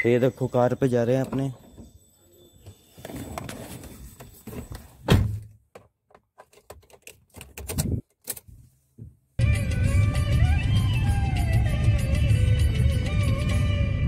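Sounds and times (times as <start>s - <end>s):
loud thump: 5.1s - 5.5s
background music: 9.4s - 14.0s.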